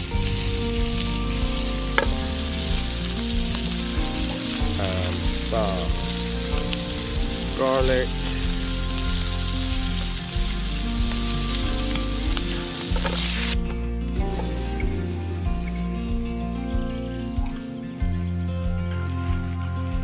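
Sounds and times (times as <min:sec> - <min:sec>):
burger patty sizzling in a frying pan: 0:00.0 - 0:13.6.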